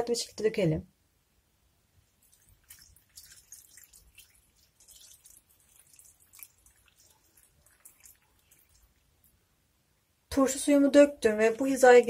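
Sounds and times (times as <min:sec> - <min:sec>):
liquid trickling into jar: 0:02.1 - 0:09.4.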